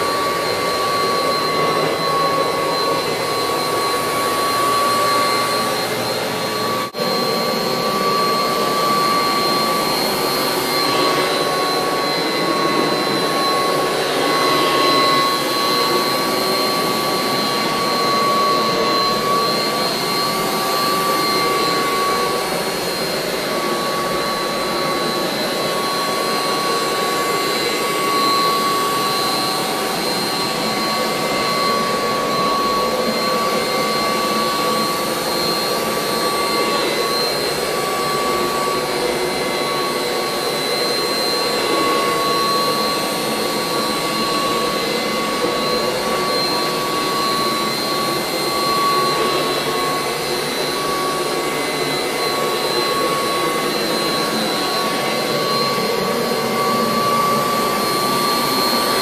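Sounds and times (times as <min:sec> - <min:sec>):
vacuum cleaner running: 0:00.0 - 0:59.0.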